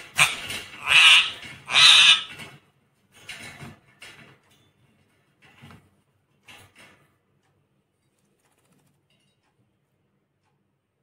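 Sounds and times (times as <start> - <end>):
parakeet squawking harshly: 0.1 - 2.4.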